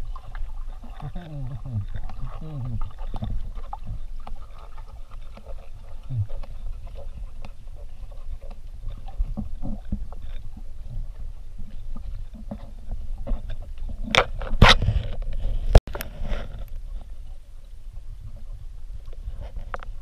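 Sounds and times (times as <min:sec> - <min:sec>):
water splashing from swimmers: 0:00.0 - 0:15.8.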